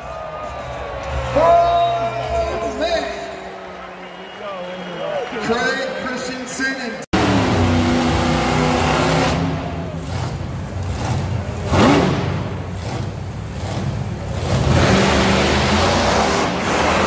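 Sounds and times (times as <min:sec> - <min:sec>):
monster truck engine revving: 0:07.2 - 0:17.0.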